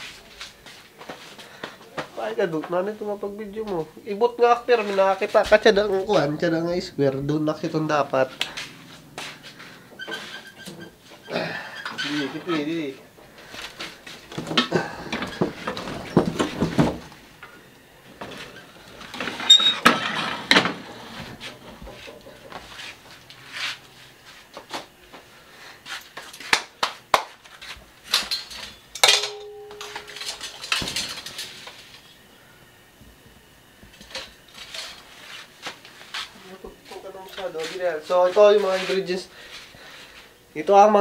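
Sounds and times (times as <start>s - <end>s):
short squeaky tone: 19.5s - 19.8s
metal cookware clattering: 28.2s - 31.6s.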